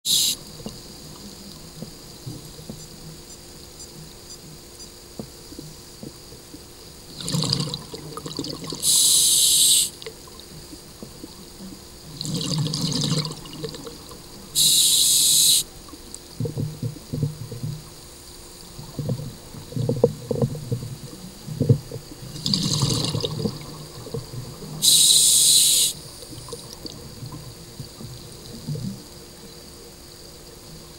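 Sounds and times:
regulator air hissing: 0.1s - 0.4s, 8.8s - 10.0s, 14.6s - 15.7s, 24.8s - 26.8s
gurgling exhaust bubbles: 6.1s - 8.9s, 10.0s - 14.3s, 18.6s - 25.1s.

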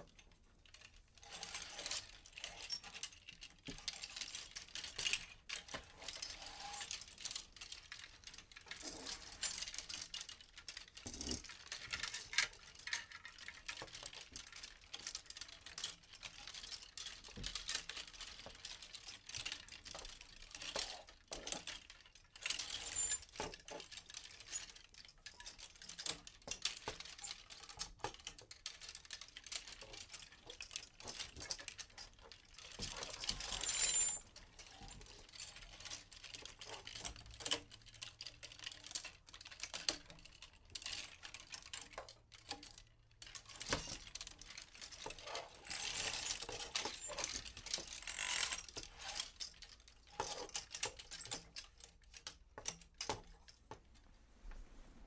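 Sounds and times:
clothes hangers clicking and clattering: 0.0s - 53.9s
hangers scraping along rail: 6.3s - 7.0s, 44.9s - 49.4s.

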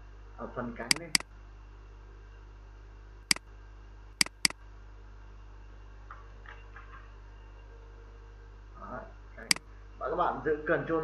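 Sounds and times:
computer mouse clicks: 0.9s - 1.2s, 4.2s - 4.5s.

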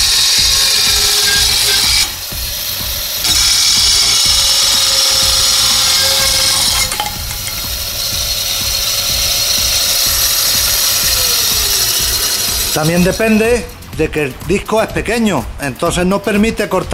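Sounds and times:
disc cutting through cane: 0.0s - 13.4s
electric disc saw whining: 0.0s - 13.8s.

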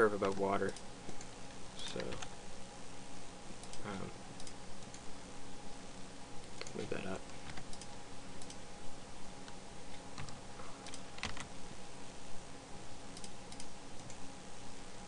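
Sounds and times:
faint steady hum: 0.0s - 15.0s
keyboard keystrokes and clicks: 2.0s - 2.3s, 10.2s - 11.5s.

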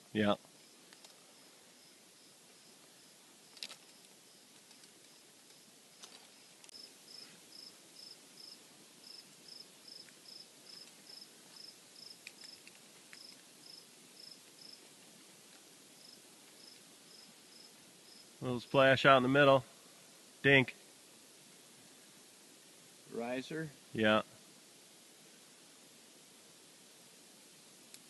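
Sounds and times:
cricket chirping: 0.5s - 14.9s, 15.9s - 18.5s.

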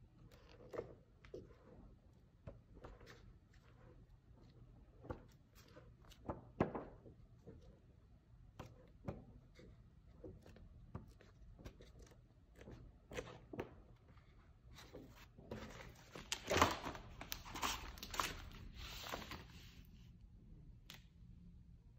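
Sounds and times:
book pages rustling: 10.3s - 20.0s.

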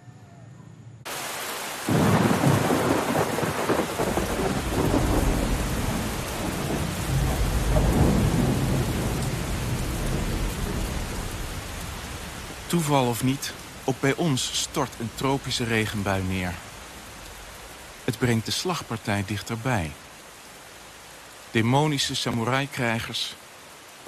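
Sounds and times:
heavy rain downpour: 1.1s - 24.0s
thunder rumbling: 1.9s - 19.6s.

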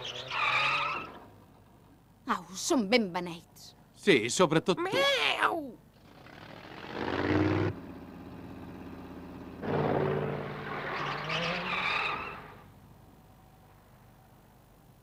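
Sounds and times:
cartoon old car engine: 5.9s - 12.7s
tyres screeching: 9.6s - 12.7s.

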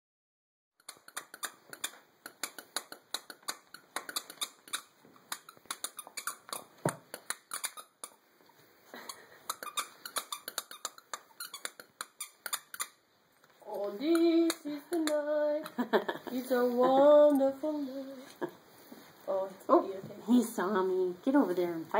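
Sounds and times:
dog squeaky toy squeaking: 2.9s - 8.2s, 9.4s - 13.0s.

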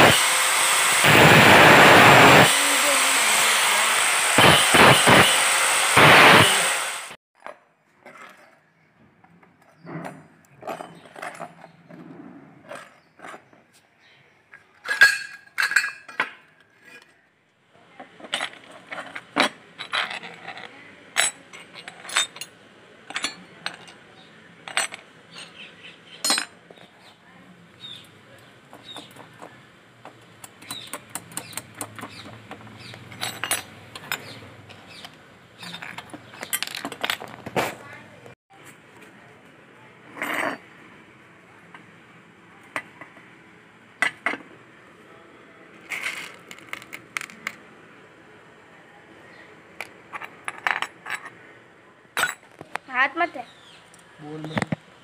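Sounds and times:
angle grinder cutting steel: 0.0s - 7.2s
metal parts clinking: 18.2s - 22.5s, 33.1s - 34.3s, 35.6s - 37.5s, 45.9s - 47.6s.

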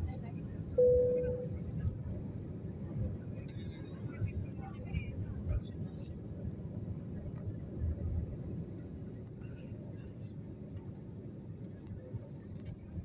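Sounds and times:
airliner cabin engine rumble: 0.0s - 13.0s.

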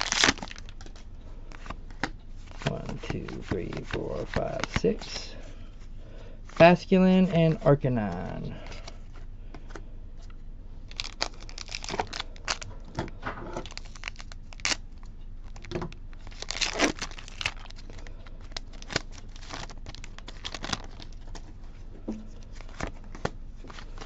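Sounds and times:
foil wrapper crinkling and tearing: 0.0s - 1.8s, 2.6s - 5.4s, 10.9s - 12.7s, 13.6s - 21.6s.

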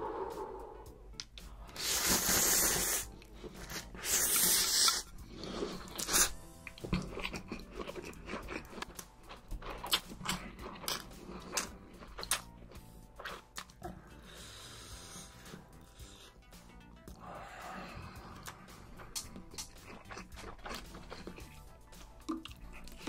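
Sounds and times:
slurping noodles: 1.7s - 8.8s
wet chewing and lip smacking: 3.1s - 13.8s, 18.3s - 23.0s.

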